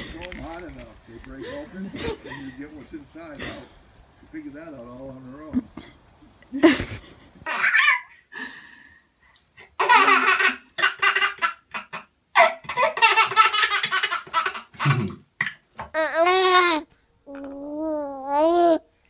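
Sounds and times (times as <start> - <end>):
baby laughing: 7.4 - 8.1, 9.8 - 15.2.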